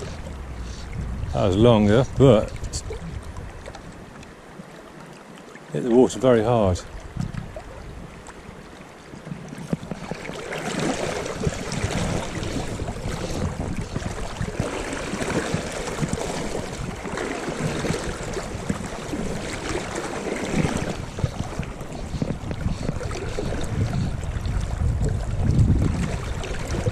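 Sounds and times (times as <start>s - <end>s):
wind buffeting microphone: 0.0s - 4.2s, 6.4s - 8.4s, 9.3s - 26.9s
river water flowing: 0.0s - 26.9s.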